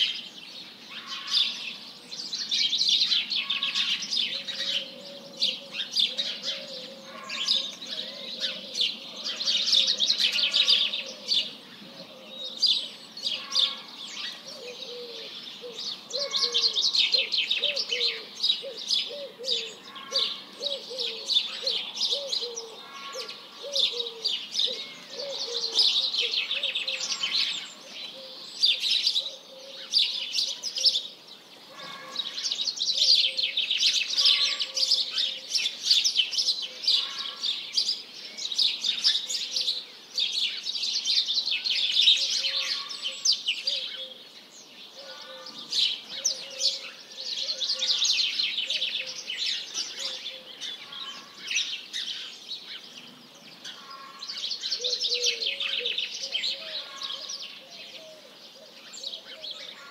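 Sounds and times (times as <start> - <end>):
songbirds trilling: 0.0 - 59.9
low cooing: 4.4 - 12.6, 14.4 - 27.2.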